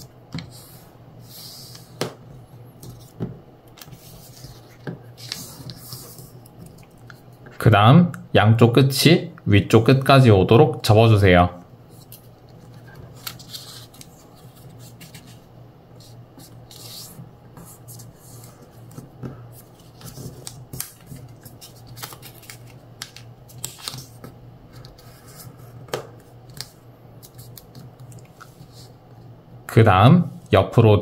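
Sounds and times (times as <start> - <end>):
paper rustling and scraping: 3.8 - 7.2, 11.9 - 29.0.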